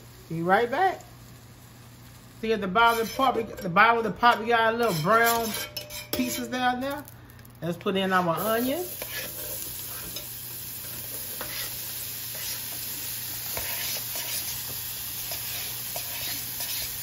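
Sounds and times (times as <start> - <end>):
onions sizzling in fat: 0.0 - 17.0
fork scraping cutting board: 2.9 - 3.5, 4.8 - 6.5, 9.0 - 9.6, 11.3 - 12.6, 13.5 - 14.6, 15.3 - 17.0.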